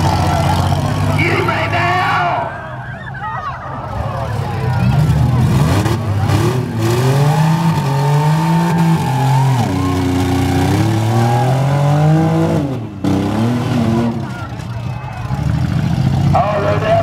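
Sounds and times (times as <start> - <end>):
car engine revving hard: 5.3 - 14.4.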